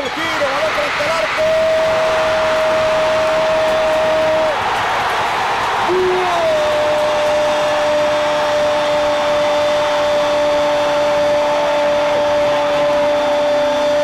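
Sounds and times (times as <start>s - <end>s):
commentator's long goal cry: 5.9s - 14.0s.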